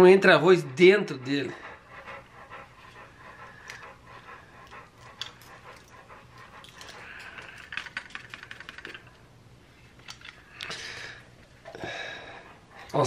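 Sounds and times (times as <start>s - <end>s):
rapid small clicks: 4.6s - 9.2s.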